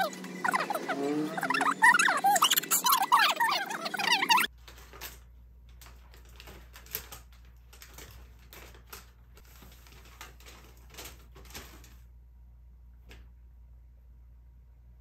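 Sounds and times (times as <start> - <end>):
paper bag crinkling: 4.5 - 12.0.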